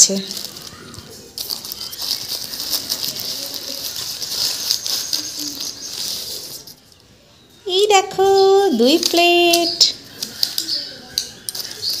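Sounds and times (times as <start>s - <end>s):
plastic bag crinkling: 0.0s - 7.0s, 11.4s - 12.0s.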